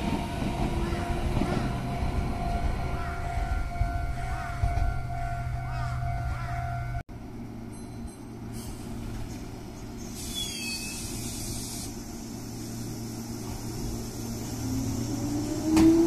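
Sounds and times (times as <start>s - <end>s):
train low hum: 0.0s - 16.0s
air hiss: 10.0s - 14.5s
train motor whine: 10.1s - 16.0s.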